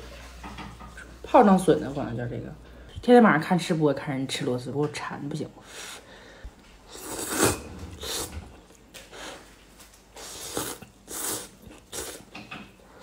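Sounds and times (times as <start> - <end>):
person slurping noodles: 6.9 - 8.6, 10.2 - 12.3.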